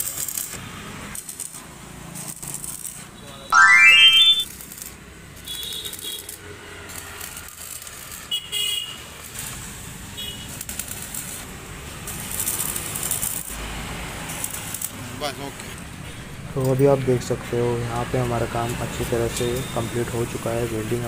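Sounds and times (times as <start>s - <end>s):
short high-pitched toots: 3.6s - 4.4s
arc welder crackling and sizzling: 10.4s - 13.6s, 14.3s - 15.0s.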